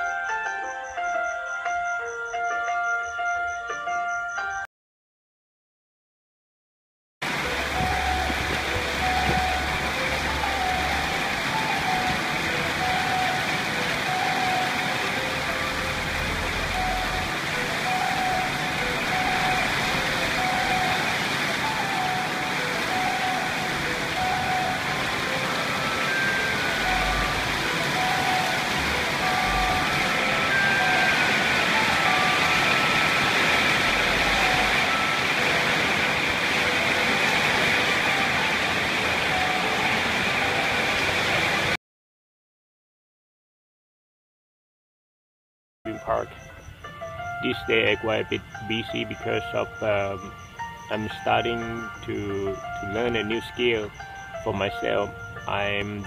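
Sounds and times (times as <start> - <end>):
faint background melody: 0.0 - 4.6, 7.3 - 40.8, 45.9 - 56.0
heavy rain falling: 7.2 - 41.8, 47.3 - 56.0
wind buffeting microphone: 7.3 - 15.0.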